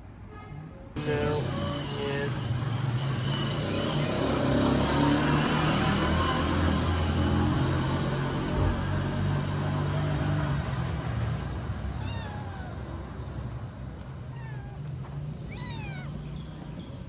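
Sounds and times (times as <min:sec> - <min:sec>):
cat meowing: 0:11.9 - 0:13.0, 0:14.2 - 0:16.3.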